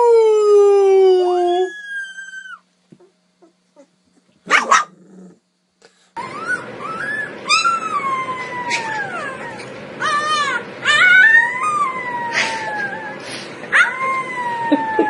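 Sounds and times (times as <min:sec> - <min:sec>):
puppy howling: 0:00.0 - 0:02.7, 0:06.2 - 0:15.0
puppy yelp: 0:06.2 - 0:15.0.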